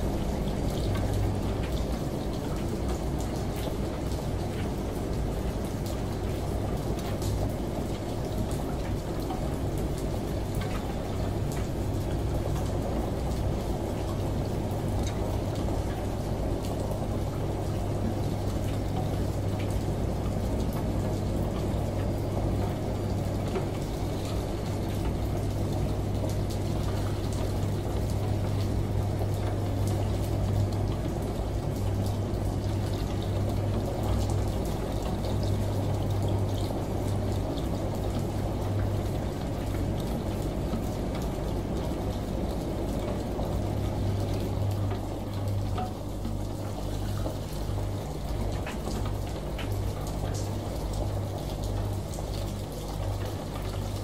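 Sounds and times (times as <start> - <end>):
shower water running: 0.0 - 54.0
washing machine hum: 0.0 - 54.0.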